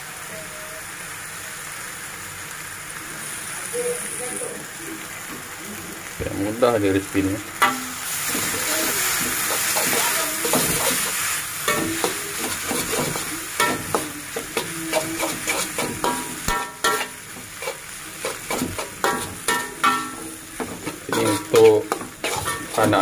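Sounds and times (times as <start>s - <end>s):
noodles sizzling in a wok: 0.0s - 23.0s
spatula scraping a wok: 7.6s - 23.0s.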